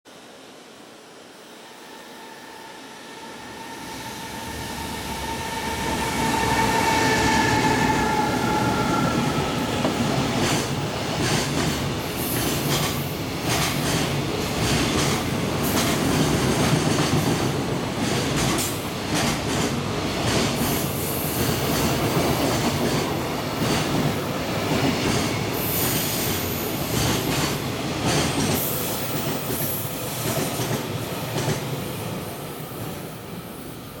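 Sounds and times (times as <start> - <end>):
electric locomotive motor whine: 1.1 - 11.0
high wheel squeal: 1.7 - 10.1.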